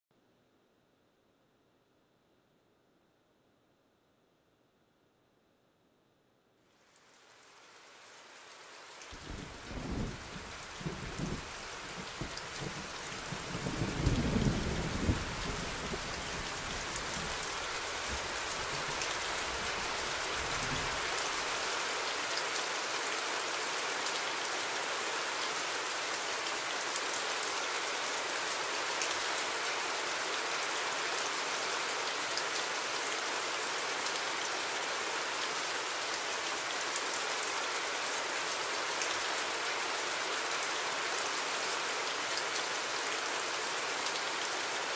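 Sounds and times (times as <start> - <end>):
steady rain falling: 6.6 - 44.9
thunder rumble: 9.2 - 16.6.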